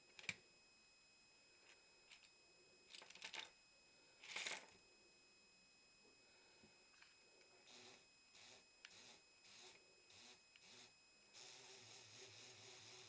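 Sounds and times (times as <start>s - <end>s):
plastic pieces clattering onto cloth: 2.9s - 3.5s, 4.2s - 4.8s.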